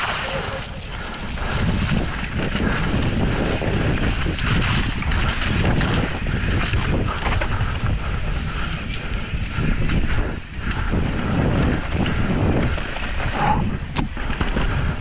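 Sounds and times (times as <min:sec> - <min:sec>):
knobby tyres rolling on dirt: 0:00.0 - 0:15.0
wind buffeting microphone: 0:00.0 - 0:15.0
bike knocking over stones: 0:04.2 - 0:07.9, 0:12.0 - 0:15.0.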